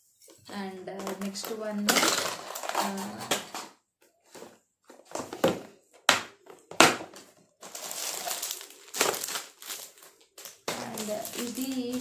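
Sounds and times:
plastic wrapping rustle: 0:00.3 - 0:03.6, 0:07.6 - 0:12.0.

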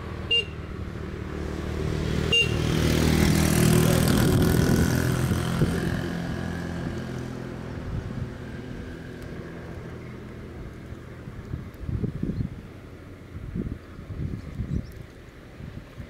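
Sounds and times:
moped engine passing: 0:00.0 - 0:11.4.

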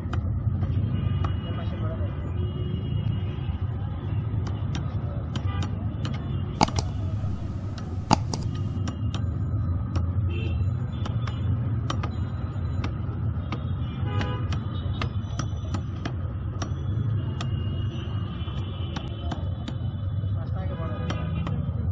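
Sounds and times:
road traffic rumble: 0:06.6 - 0:08.8
sharp clicks and knocks: 0:06.6 - 0:08.8.

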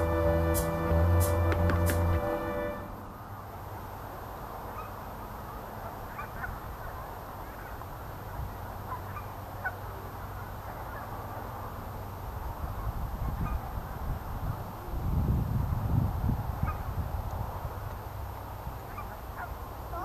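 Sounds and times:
low outdoor rumble: 0:00.0 - 0:04.4.

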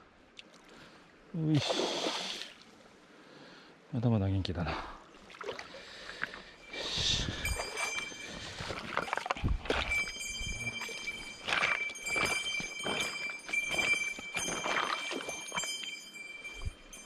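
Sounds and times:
steady high-pitched tone: 0:06.6 - 0:17.0
footsteps on river stones: 0:07.3 - 0:16.8.

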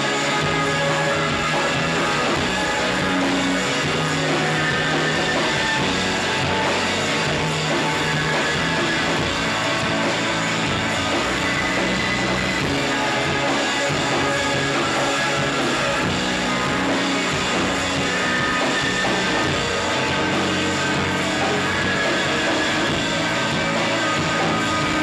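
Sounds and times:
rock band playing live: 0:00.0 - 0:25.0.

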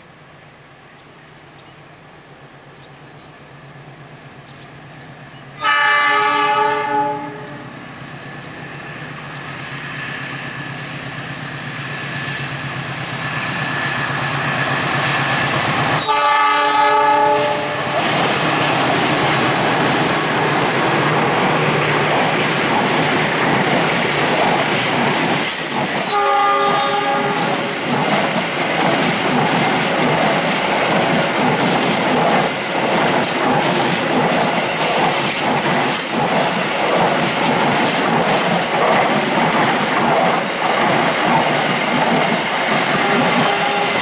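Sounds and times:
train horn blasts: 0:05.5 - 0:07.8, 0:16.0 - 0:18.0, 0:26.0 - 0:27.7, 0:43.0 - 0:44.0
locomotive engine approaching: 0:06.9 - 0:44.0
train wheels clacking over rail joints: 0:17.4 - 0:44.0.

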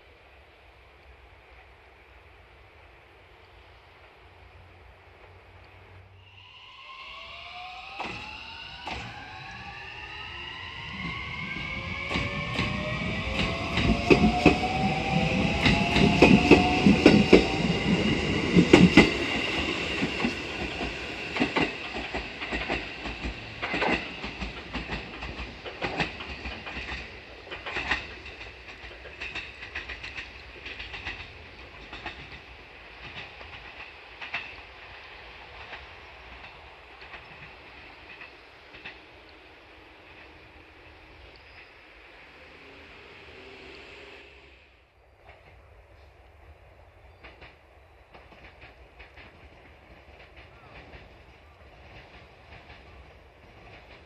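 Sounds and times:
train whine: 0:00.0 - 0:54.0
train wheels clacking over rail joints: 0:12.1 - 0:34.8, 0:35.6 - 0:39.3, 0:47.1 - 0:54.0.

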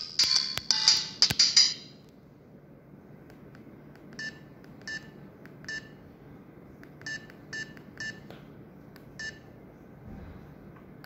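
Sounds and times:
phone keypad beeps: 0:04.2 - 0:06.0, 0:07.0 - 0:08.3, 0:09.2 - 0:09.5.

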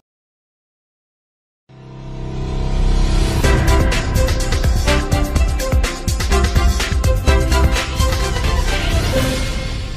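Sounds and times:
electronic music with heavy bass: 0:03.4 - 0:09.8.

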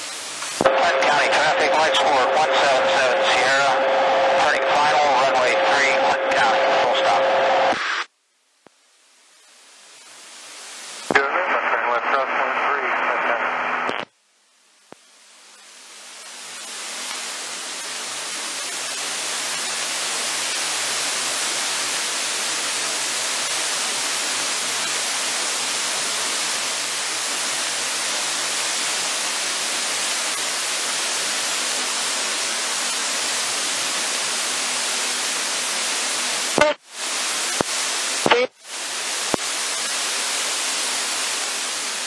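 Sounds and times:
radio static hiss: 0:00.0 - 0:42.0.

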